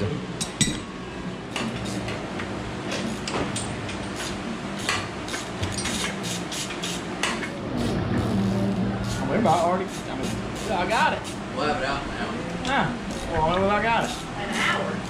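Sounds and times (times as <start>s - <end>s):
low steady hum: 7.1s - 15.0s
ratchet wrench clicking: 13.1s - 13.4s.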